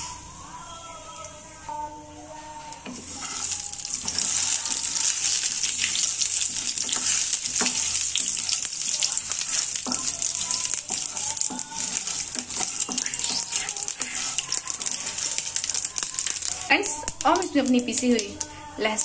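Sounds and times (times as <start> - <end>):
mustard seeds sizzling in hot oil: 2.7 - 19.0
wooden spatula stirring: 2.8 - 17.0.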